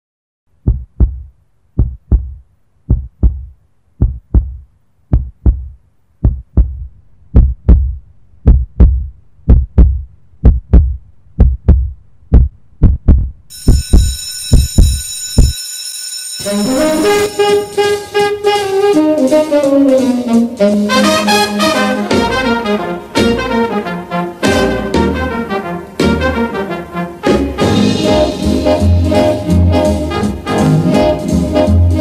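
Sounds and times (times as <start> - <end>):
heartbeat thumps: 0.6 - 15.6.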